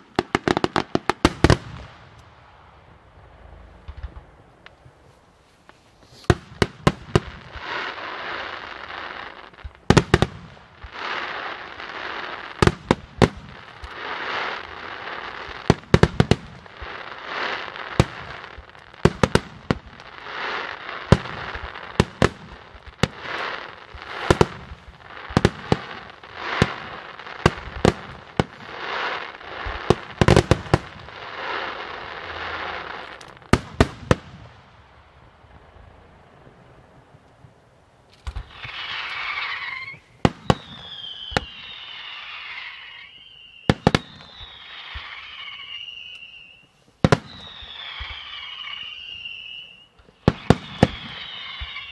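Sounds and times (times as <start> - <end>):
rushing crackling fireworks: 0.0 - 51.9
firework shells bursting: 38.1 - 51.9.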